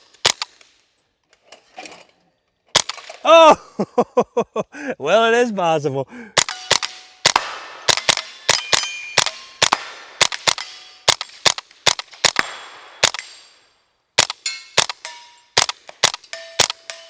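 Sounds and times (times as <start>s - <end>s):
steel targets pinging: 6.4s - 11.4s, 14.3s - 17.0s
rapid pistol shots: 6.4s - 13.5s, 14.2s - 16.9s.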